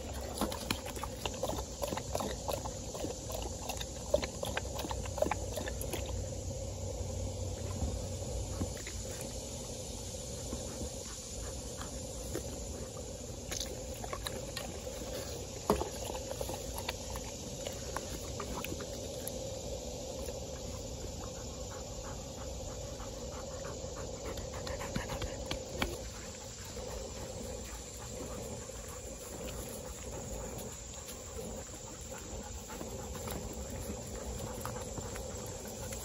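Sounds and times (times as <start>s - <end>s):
dog panting: 10.2s - 19.4s, 20.1s - 36.0s.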